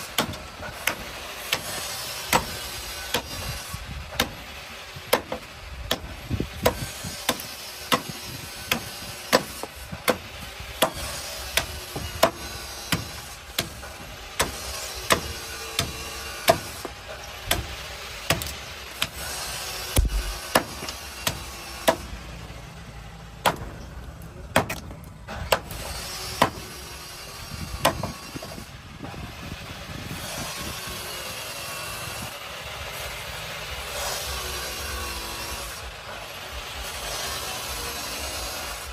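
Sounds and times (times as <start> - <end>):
blade chopping wooden stick: 0.0 - 3.5, 4.1 - 4.4, 5.1 - 13.8, 14.4 - 19.2, 19.9 - 22.1, 23.4 - 23.8, 24.5 - 26.6.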